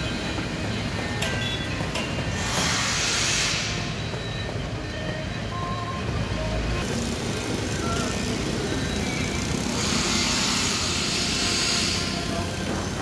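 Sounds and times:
road traffic: 0:00.0 - 0:13.0
hiss: 0:02.3 - 0:03.9, 0:09.7 - 0:12.8.

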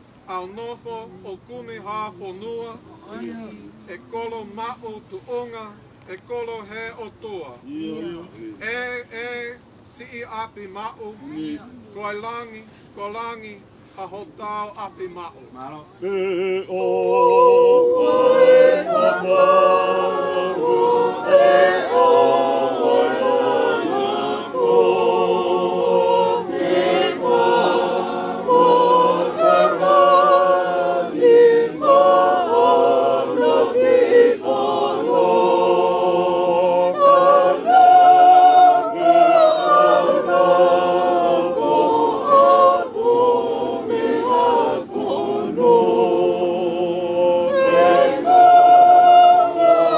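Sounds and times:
choir singing a hymn: 0:16.0 - 0:49.9.

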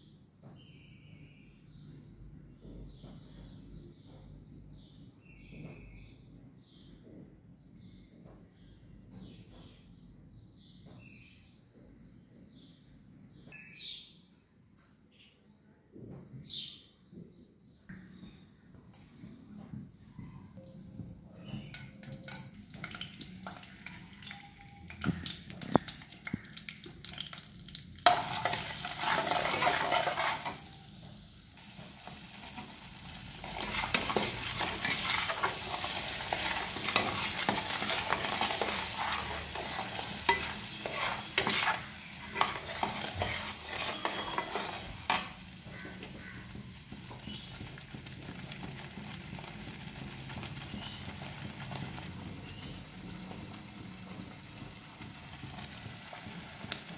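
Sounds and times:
spices sizzling in hot oil: 0:21.4 - 0:56.9
metal spatula scraping a pan: 0:28.0 - 0:31.0, 0:32.0 - 0:46.0.

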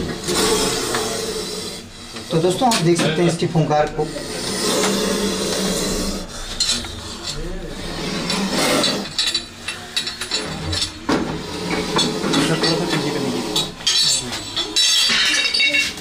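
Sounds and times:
snake hissing: 0:04.2 - 0:06.4
knocks and clinks: 0:08.2 - 0:16.0.

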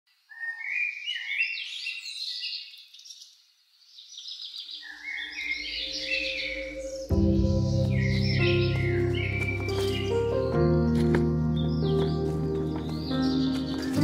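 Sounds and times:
birds chirping and singing: 0:00.2 - 0:14.0
soft low music: 0:05.4 - 0:14.0.

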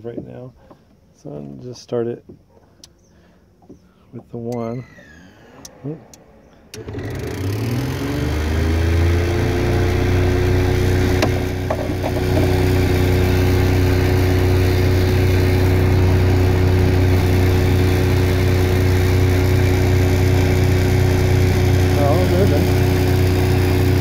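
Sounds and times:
electric motor humming: 0:04.9 - 0:24.0.

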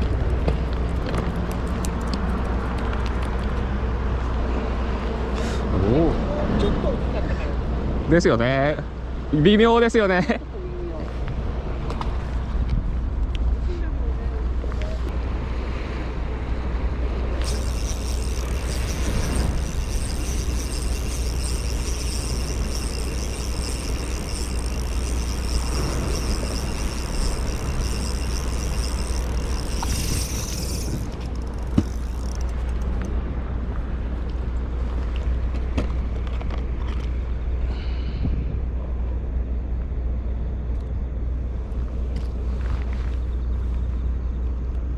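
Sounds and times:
low outdoor rumble: 0:00.0 - 0:44.9
high-pitched continuous whine: 0:16.4 - 0:37.8.

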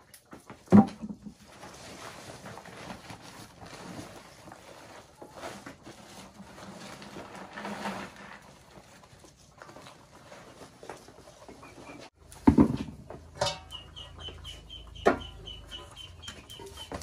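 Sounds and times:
woven sack rustling: 0:01.4 - 0:12.2
grain pouring into plastic bucket: 0:06.3 - 0:08.7.

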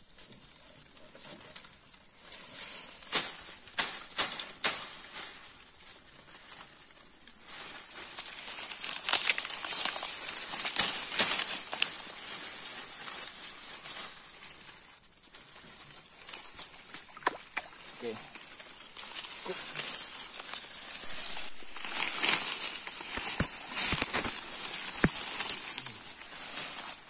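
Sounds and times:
sharp crackles and snaps: 0:08.1 - 0:12.0, 0:16.2 - 0:27.0
high-pitched insect drone: 0:13.9 - 0:27.0.

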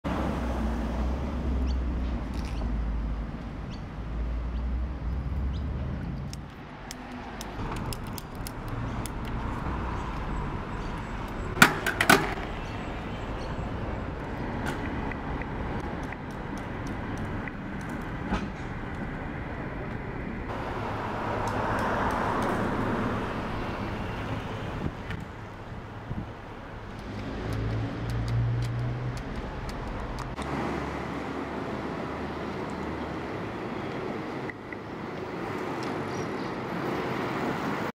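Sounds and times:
passing cars: 0:00.0 - 0:37.9.

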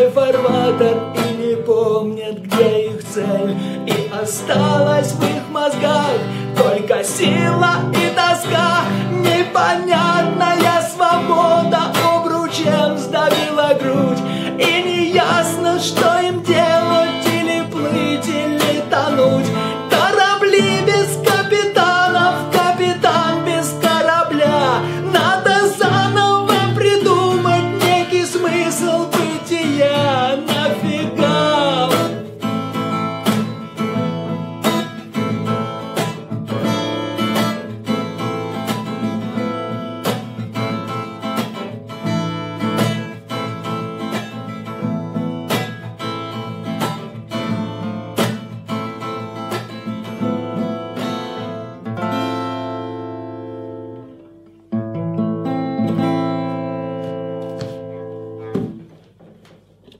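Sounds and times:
man singing: 0:00.0 - 0:32.9
acoustic guitar strumming: 0:00.0 - 0:59.9.

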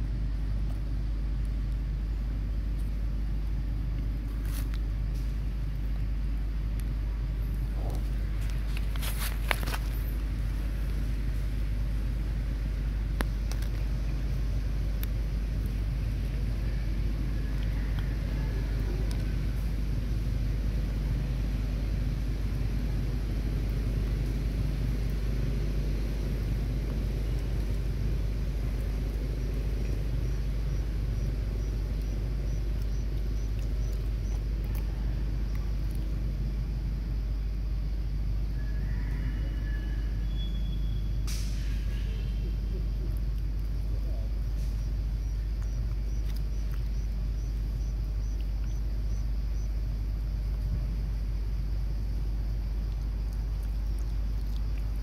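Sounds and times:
low outdoor rumble: 0:00.0 - 0:55.0
faint high chirp: 0:38.9 - 0:42.6.

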